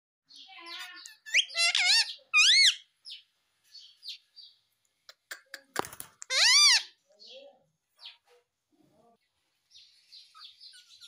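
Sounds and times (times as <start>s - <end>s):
parakeet chattering: 0.6s - 2.9s, 5.1s - 7.0s
parakeet squawking: 0.6s - 2.9s, 6.2s - 7.0s.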